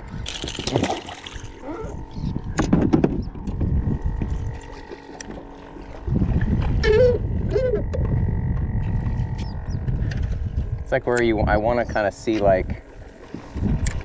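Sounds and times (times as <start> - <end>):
rumble of wind and water: 0.0 - 14.0
short wavering cries: 1.5 - 2.4.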